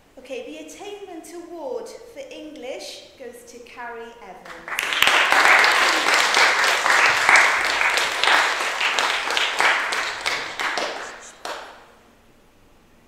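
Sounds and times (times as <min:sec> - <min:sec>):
audience applauding: 0:04.5 - 0:11.9.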